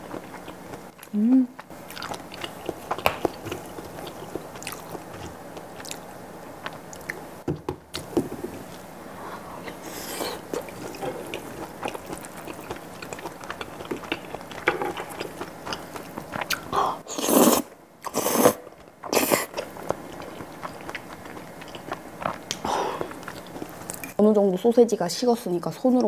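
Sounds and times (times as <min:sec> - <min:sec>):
wet chewing: 0:00.0 - 0:07.2, 0:09.6 - 0:24.1
slurping noodles: 0:17.1 - 0:19.6.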